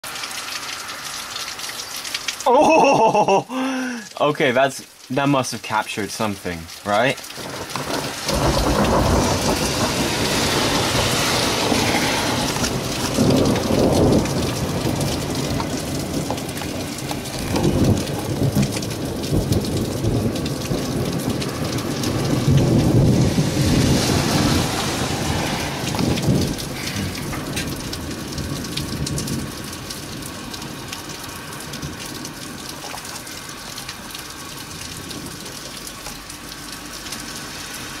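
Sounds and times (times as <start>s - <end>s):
rain hissing: 0.0s - 38.0s
thunder rumbling: 7.4s - 32.8s.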